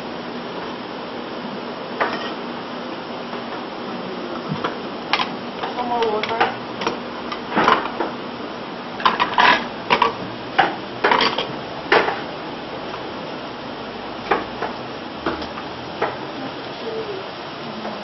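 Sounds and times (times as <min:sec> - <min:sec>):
steady hiss: 0:00.0 - 0:18.0
metal spoon clinking on pots: 0:02.0 - 0:02.4, 0:11.0 - 0:12.1.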